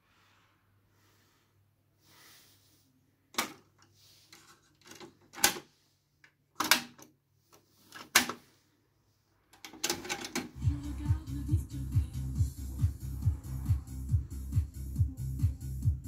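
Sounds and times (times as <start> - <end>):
electronic music with thudding beat: 10.6 - 16.0.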